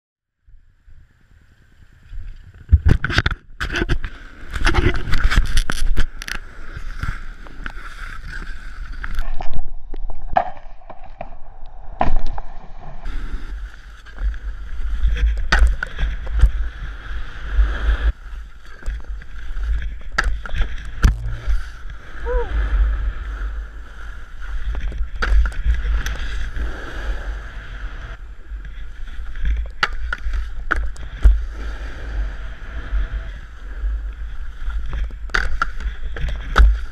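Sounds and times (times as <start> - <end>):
snowboard scraping on snow: 3.6 - 9.1, 13.0 - 36.9.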